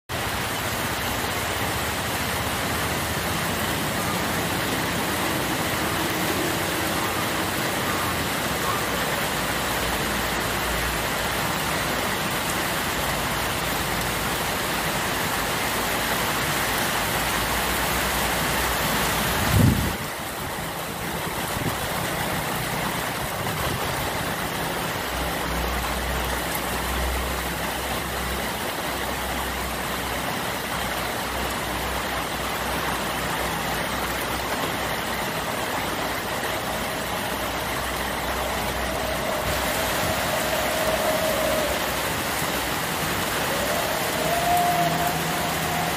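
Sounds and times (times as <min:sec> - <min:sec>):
heavy rain on leaves: 0:00.1 - 0:45.9
traffic rumble: 0:00.1 - 0:45.9
truck passing: 0:00.2 - 0:14.6.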